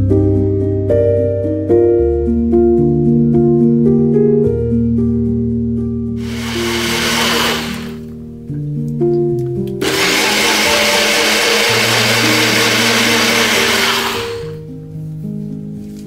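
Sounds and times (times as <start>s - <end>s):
background music with held notes: 0.0s - 16.0s
personal blender running: 6.2s - 8.0s, 9.8s - 14.6s.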